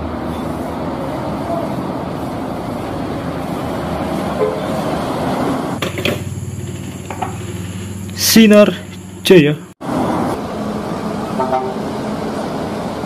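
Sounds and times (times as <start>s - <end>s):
coach bus passing: 0.0s - 13.0s.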